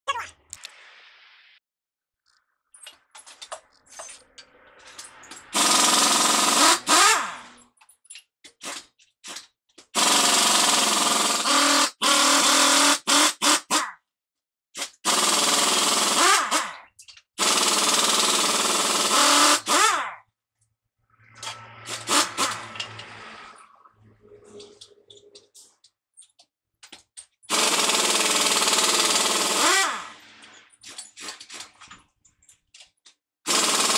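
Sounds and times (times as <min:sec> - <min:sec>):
pneumatic impact wrench hammering: 0:04.9 - 0:07.6, 0:08.4 - 0:14.0, 0:14.7 - 0:20.2, 0:21.4 - 0:23.2, 0:26.8 - 0:32.0, 0:33.4 - 0:33.9.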